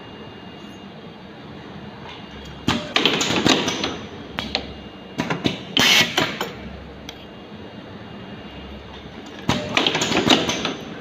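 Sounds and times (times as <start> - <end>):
pneumatic cylinders clacking: 2.5 - 6.6, 9.0 - 10.9.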